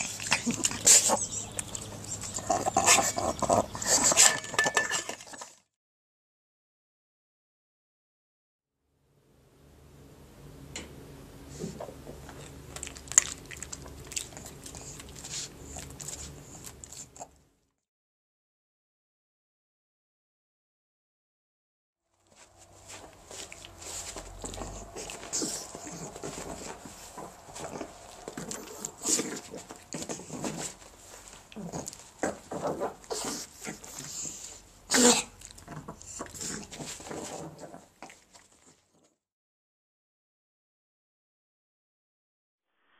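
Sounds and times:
dog chewing and smacking wetly: 0:00.0 - 0:04.4, 0:12.2 - 0:17.4, 0:22.6 - 0:34.6, 0:35.2 - 0:38.9.

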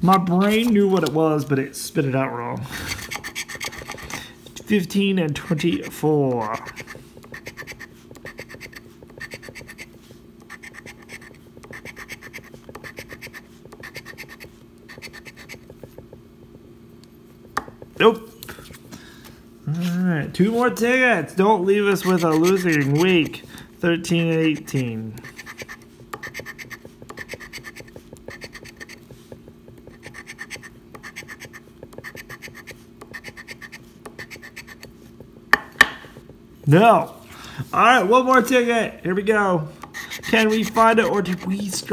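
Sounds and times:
coin scratching lottery ticket: 0:02.8 - 0:04.2, 0:05.6 - 0:15.7, 0:21.8 - 0:23.4, 0:24.0 - 0:29.1, 0:29.8 - 0:34.9, 0:39.9 - 0:41.9
coin scraping lottery ticket: 0:22.0 - 0:23.4.

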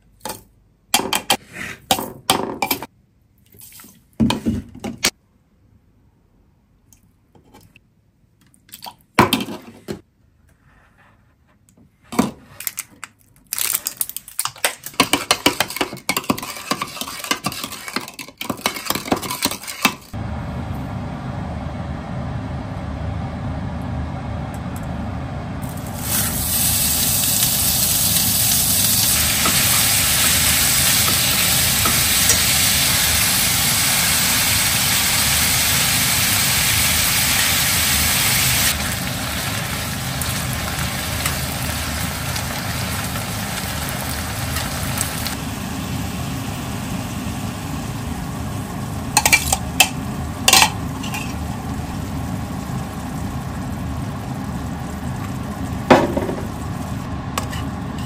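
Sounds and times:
spoon stirring with rapid clicks: 0:14.4 - 0:20.1
low rushing noise: 0:20.2 - 0:27.0
meat sizzling in a frying pan: 0:25.7 - 0:48.0.

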